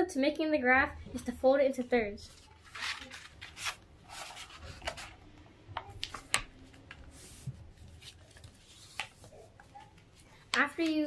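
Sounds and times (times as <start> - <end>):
paper rustling and crinkling: 2.2 - 11.0.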